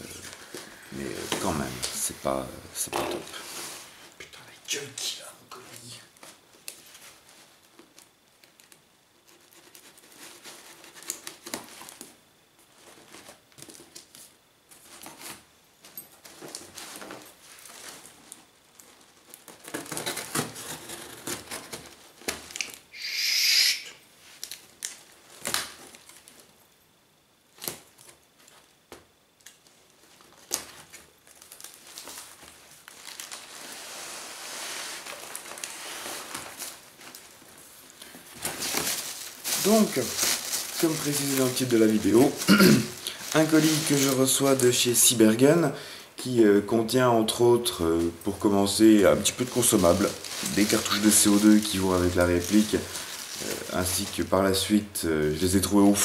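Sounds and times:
cardboard scraping and rustling: 1.0s - 4.0s, 9.2s - 15.5s, 16.1s - 22.6s, 30.0s - 44.6s, 48.0s - 54.5s.

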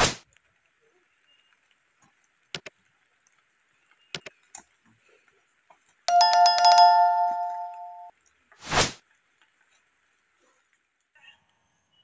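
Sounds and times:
sharp mouse clicks: 2.5s - 2.7s, 4.1s - 4.3s
bell-like notification chime: 6.1s - 8.1s.

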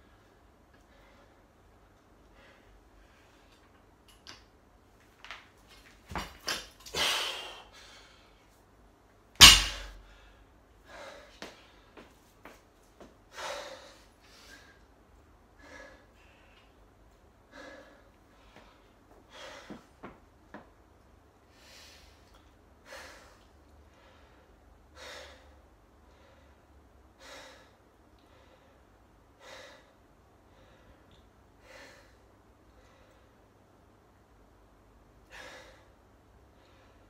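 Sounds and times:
person breathing hard: 10.0s - 12.1s, 13.3s - 14.8s, 22.8s - 33.4s, 35.2s - 37.0s.

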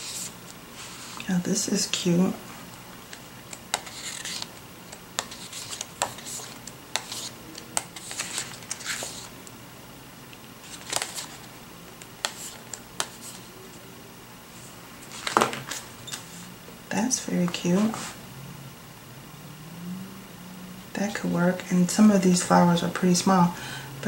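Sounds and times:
paper ticks and rustles: 3.1s - 9.3s, 10.4s - 13.5s
sticker book pages flipping: 3.1s - 9.3s, 10.6s - 11.5s, 12.2s - 13.5s.

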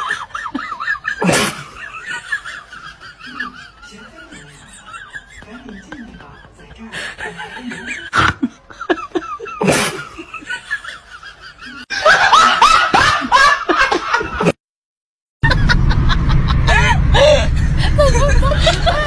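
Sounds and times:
people laughing: 0.0s - 14.6s, 15.4s - 19.0s
car engine and road rumble: 15.4s - 19.0s.

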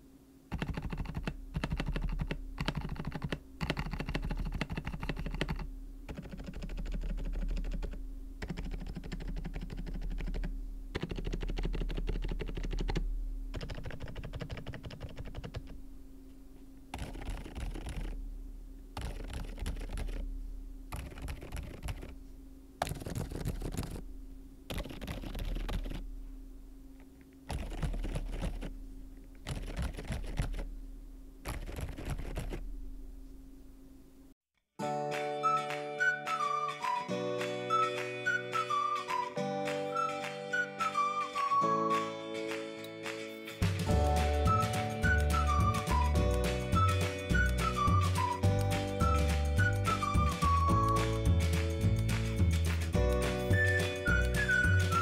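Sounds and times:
keyboard typing: 0.5s - 15.8s, 16.9s - 18.2s, 19.0s - 20.2s, 20.9s - 22.2s, 22.8s - 24.0s, 24.7s - 26.1s, 27.5s - 28.7s, 29.4s - 30.7s, 31.4s - 32.6s.

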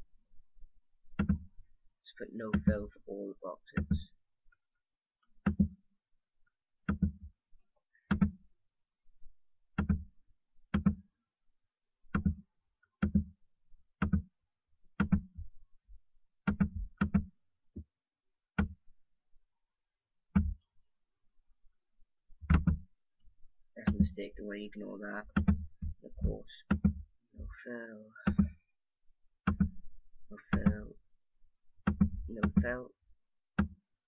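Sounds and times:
computer mouse clicking: 9.8s - 10.1s.

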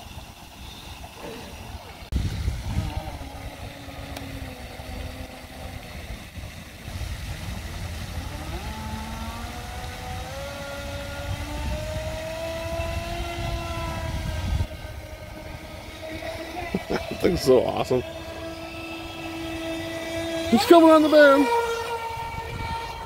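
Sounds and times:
toy boat motor whining: 0.0s - 23.0s
wind rumbling on microphone: 0.0s - 23.0s.

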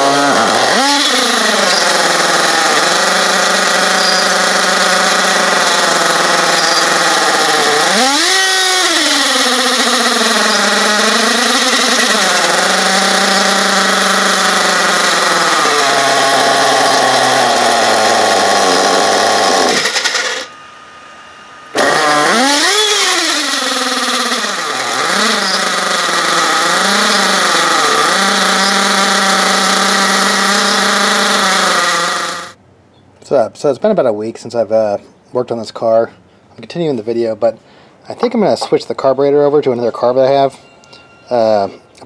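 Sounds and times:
nitro engine running unevenly: 0.0s - 32.6s.

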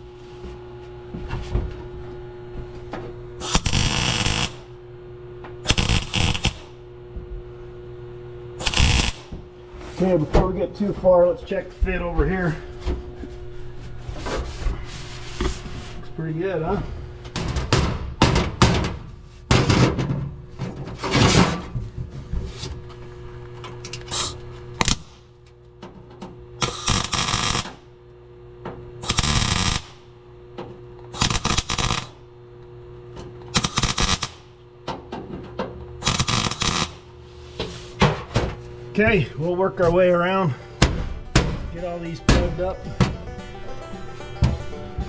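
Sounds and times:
steady electrical hum: 0.0s - 45.0s
welder bursts on sheet steel: 3.4s - 4.7s, 5.6s - 6.8s, 8.6s - 9.3s, 24.1s - 25.3s, 26.6s - 27.9s, 29.0s - 30.1s, 31.1s - 32.2s, 33.5s - 34.6s, 36.0s - 37.1s.

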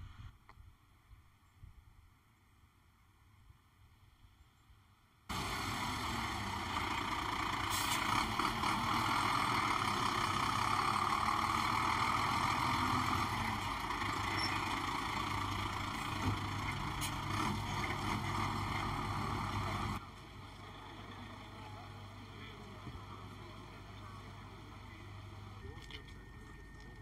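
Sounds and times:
fire engine rumble: 5.3s - 27.0s.

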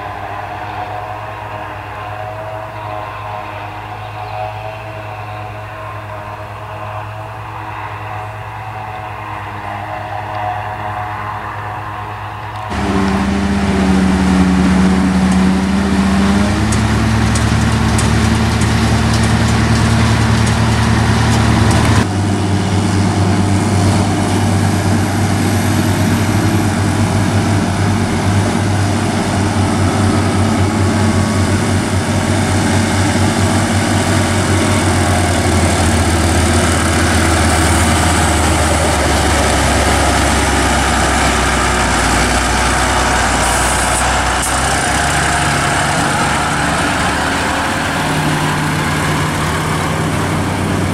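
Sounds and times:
forage harvester and tractor working: 0.0s - 50.9s
tractor diesel engine under load: 0.0s - 50.9s.

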